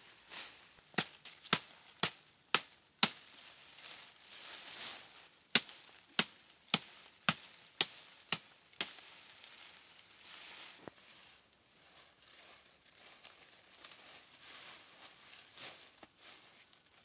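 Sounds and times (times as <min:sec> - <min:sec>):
wood being chopped: 0:00.9 - 0:03.2, 0:05.6 - 0:09.0.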